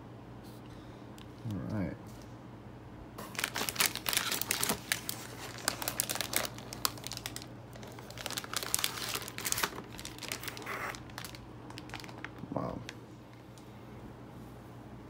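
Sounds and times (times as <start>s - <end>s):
plastic bag crinkling: 3.2s - 13.0s.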